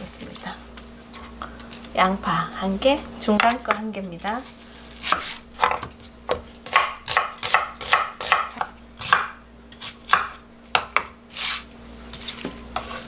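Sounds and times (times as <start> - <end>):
knife slicing onion on wooden board: 5.0 - 13.0.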